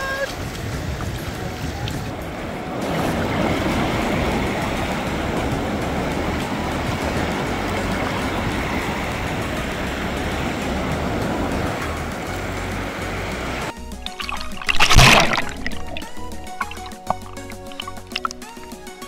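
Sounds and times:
wind on microphone: 0:00.0 - 0:13.7
surf washing on beach: 0:00.0 - 0:19.0.

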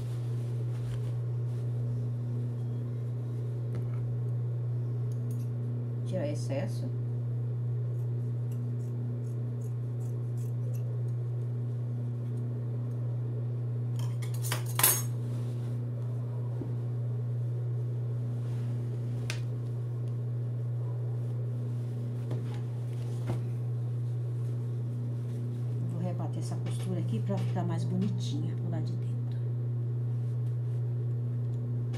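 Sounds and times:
scissors snipping fabric: 0:07.9 - 0:11.3.

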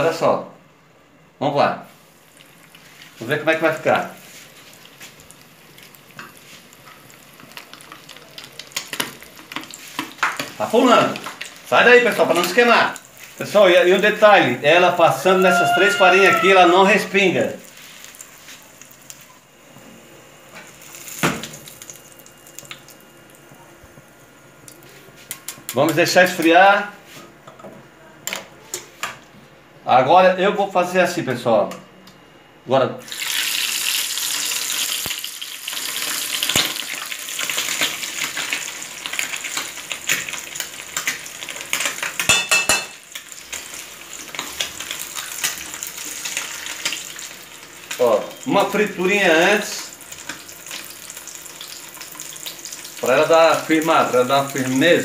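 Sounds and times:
oil sizzling in frying pan: 0:01.9 - 0:19.6, 0:20.2 - 0:23.4, 0:33.0 - 0:55.0.

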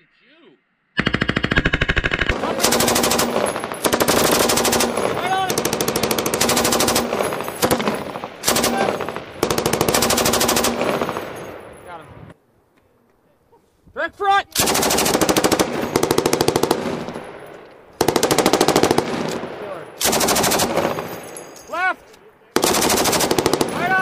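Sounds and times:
machine gun automatic fire bursts: 0:01.0 - 0:11.6, 0:14.6 - 0:17.3, 0:18.0 - 0:21.2, 0:22.6 - 0:24.0.

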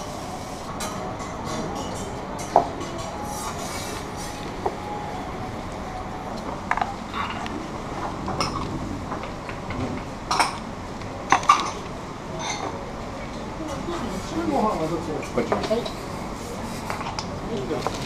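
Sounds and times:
restaurant dining room hum: 0:00.0 - 0:18.0
plates and utensils clinking: 0:00.7 - 0:05.2.

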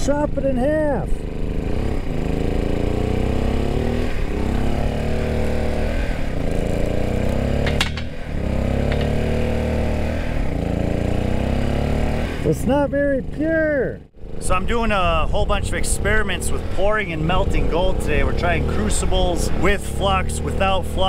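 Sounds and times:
small engine running: 0:00.0 - 0:12.6
bolt cutters snapping metal: 0:07.3 - 0:08.2, 0:08.9 - 0:09.2.

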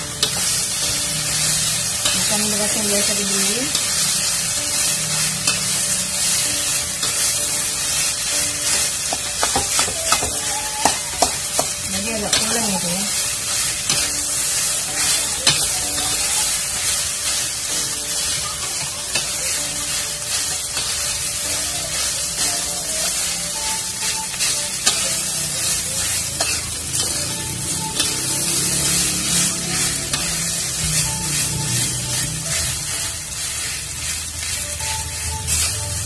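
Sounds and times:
rice and egg sizzling in a wok: 0:00.0 - 0:36.0
metal spatula scraping a wok: 0:00.2 - 0:10.2, 0:11.2 - 0:23.2, 0:23.8 - 0:36.0
spatula clacking on wok: 0:08.6 - 0:12.6, 0:26.0 - 0:27.2.

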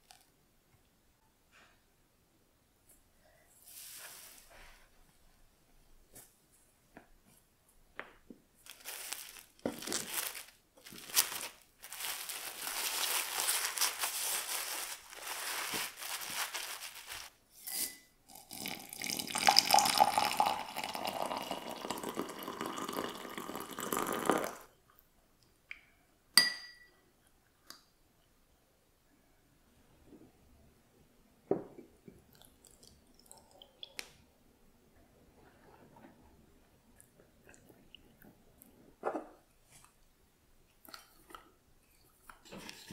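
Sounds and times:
rustling and scraping: 0:03.6 - 0:05.2, 0:08.6 - 0:17.4, 0:41.1 - 0:42.9
water poured into a glass: 0:18.3 - 0:24.6
spoon clinking on glass: 0:26.4 - 0:27.0.

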